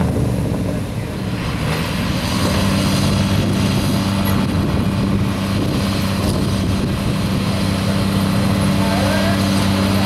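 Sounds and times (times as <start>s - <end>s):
vehicle engine idling: 3.1s - 10.0s.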